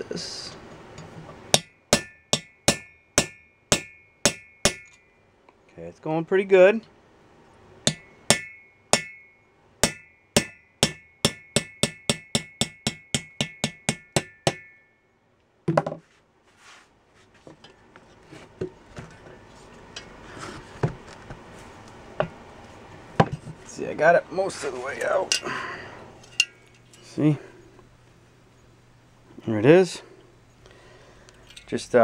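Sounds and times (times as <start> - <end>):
hammer striking metal: 1.5 - 5.2, 7.9 - 15.0.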